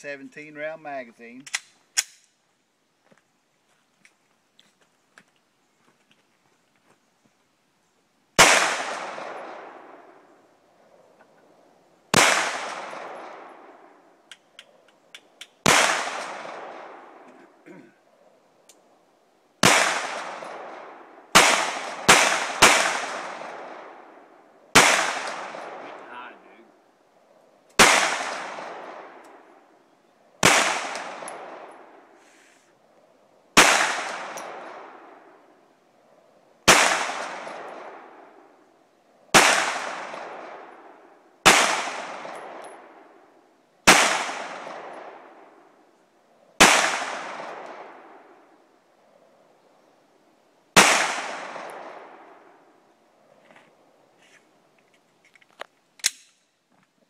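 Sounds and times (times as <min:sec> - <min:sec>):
pistol shots with echo: 0:08.4 - 0:10.2, 0:12.1 - 0:13.9, 0:15.6 - 0:17.3, 0:19.6 - 0:26.4, 0:27.8 - 0:29.5, 0:30.4 - 0:32.0, 0:33.6 - 0:35.3, 0:36.7 - 0:38.4, 0:39.3 - 0:43.1, 0:43.8 - 0:45.6, 0:46.6 - 0:48.3, 0:50.8 - 0:52.6.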